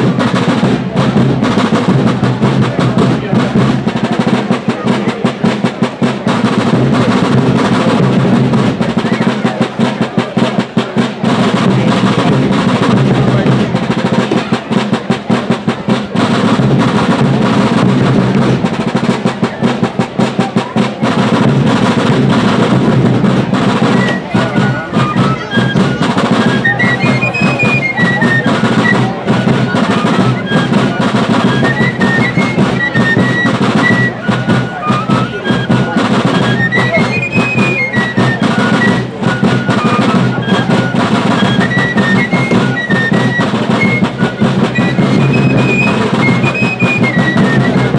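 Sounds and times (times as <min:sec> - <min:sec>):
drums beating cadence: 0:00.0 - 0:47.9
fifes playing high melody: 0:23.0 - 0:47.9.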